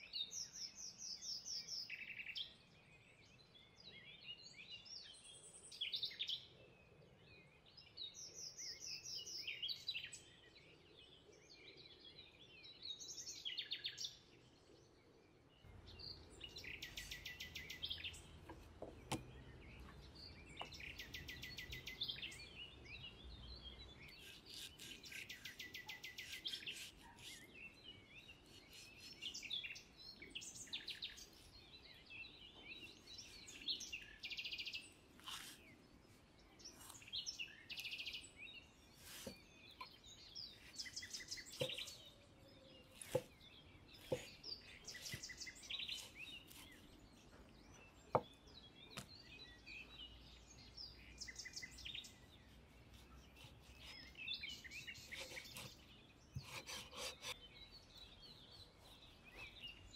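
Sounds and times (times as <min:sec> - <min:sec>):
small birds chirping: 0:00.0 - 0:59.9
cleaver knocking on cutting board: 0:18.5 - 0:19.3.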